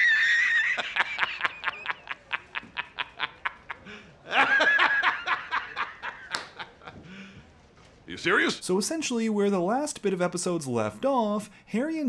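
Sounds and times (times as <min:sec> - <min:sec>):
man laughing hard: 0:00.0 - 0:07.0.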